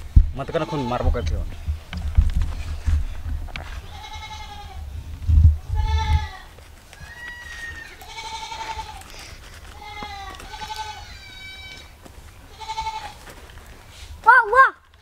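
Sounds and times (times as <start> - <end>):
goat bleating: 0.4 - 1.2, 3.8 - 4.8, 5.8 - 13.2.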